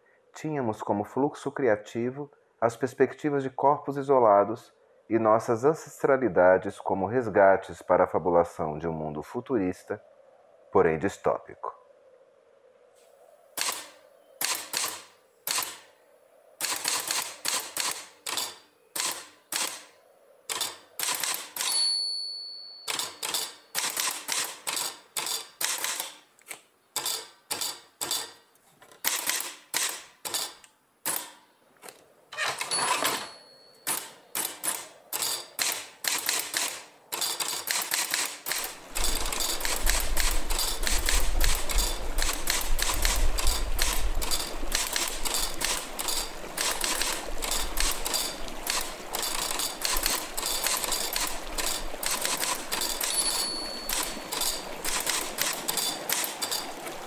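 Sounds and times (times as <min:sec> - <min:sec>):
sharp clicks: 0:13.6 - 0:15.9, 0:16.6 - 0:19.9, 0:20.5 - 0:21.8, 0:22.9 - 0:28.3, 0:33.8 - 0:53.3
dense crackling noise: 0:38.5 - 0:53.2.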